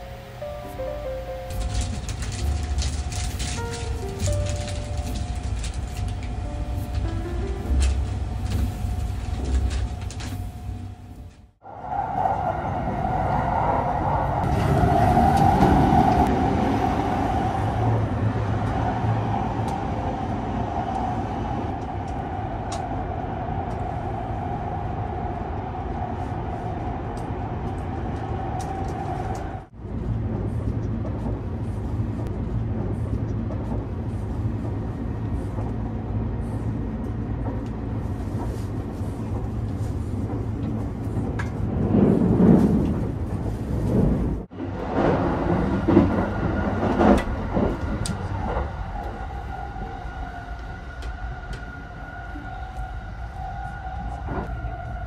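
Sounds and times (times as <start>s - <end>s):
steady train hum: 0.0s - 55.0s
train running rumble: 0.0s - 55.0s.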